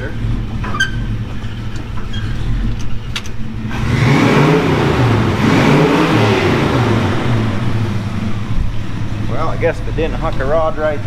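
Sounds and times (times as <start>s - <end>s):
car engine idling and revving: 0.0s - 11.0s.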